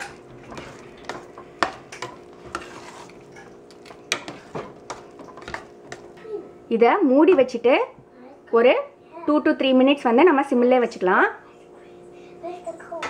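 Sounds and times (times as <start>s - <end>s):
metal spoon scraping a pot: 0.0s - 6.0s
faint steady hum: 0.0s - 13.0s.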